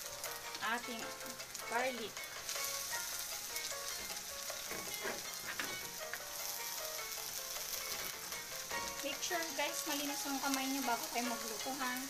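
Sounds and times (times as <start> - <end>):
food sizzling in hot oil: 0.0 - 12.0
ladle scraping pan: 4.0 - 6.0.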